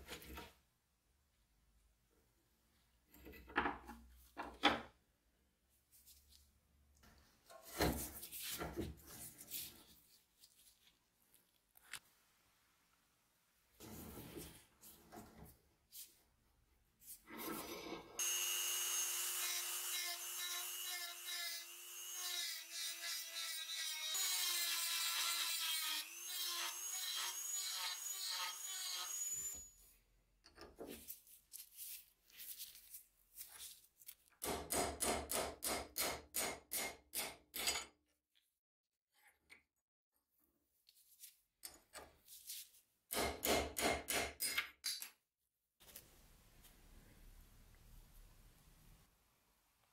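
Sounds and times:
rotary tool grinding whine: 18.2s - 23.5s.

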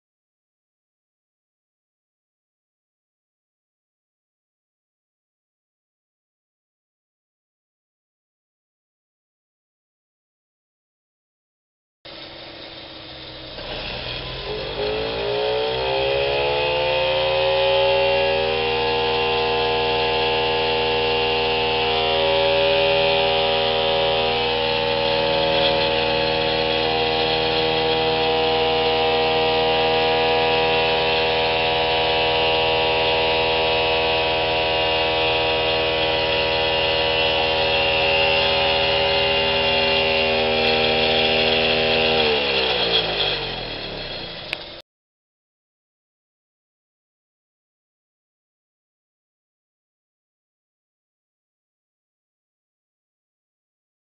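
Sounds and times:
drill rig whine: 12.1s - 44.8s.

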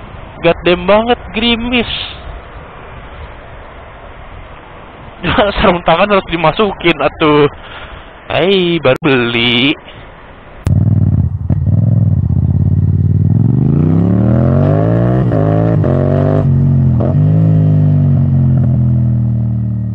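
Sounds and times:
motorcycle engine accelerating: 10.6s - 19.9s.

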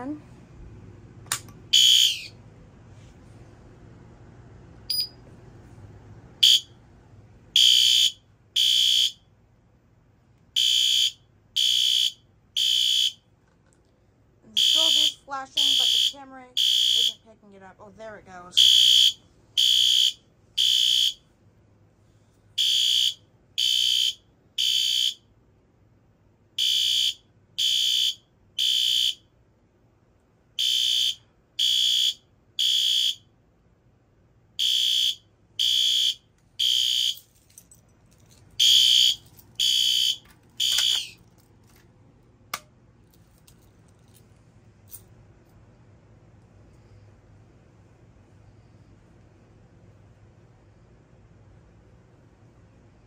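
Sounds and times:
fire alarm horn blasts: 1.7s - 2.4s, 6.4s - 6.8s, 7.6s - 9.3s, 10.6s - 13.3s, 14.5s - 17.3s, 18.6s - 21.3s, 22.6s - 25.3s, 26.6s - 29.3s, 30.6s - 33.3s, 34.6s - 37.3s, 38.6s - 41.2s.

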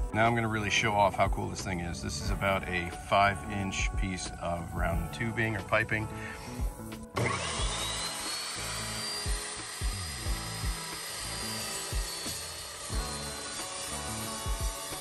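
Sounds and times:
background music with steady beat: 0.0s - 15.0s
saw blade cutting steel tubing: 5.1s - 15.0s
chop saw motor whining: 5.5s - 15.0s.

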